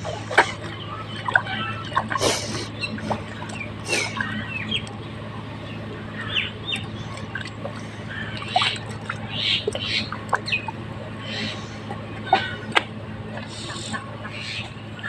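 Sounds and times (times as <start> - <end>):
birds chirping: 0.0 - 15.0
steady low hum: 0.0 - 15.0
hands squelching in wet mud: 6.4 - 14.6.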